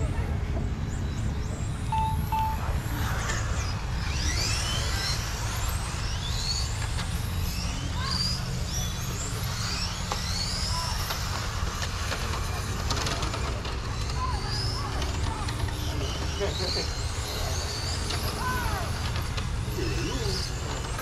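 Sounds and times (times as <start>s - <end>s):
rc car motor whining: 0.7s - 21.0s
short beeps: 1.9s - 2.9s.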